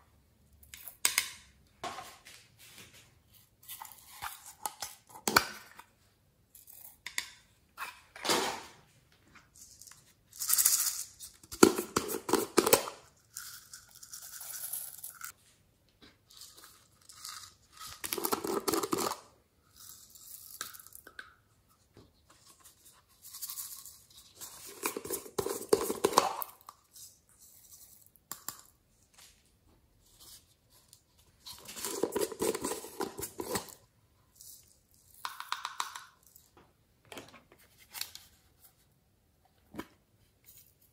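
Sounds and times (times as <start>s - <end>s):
plastic containers rustling and scraping: 21.8s - 28.2s, 29.2s - 34.8s.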